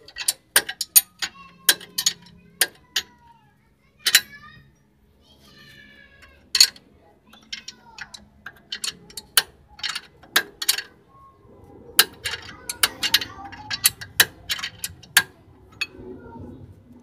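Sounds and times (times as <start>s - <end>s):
wrench clicking on a nut: 0.0s - 3.2s.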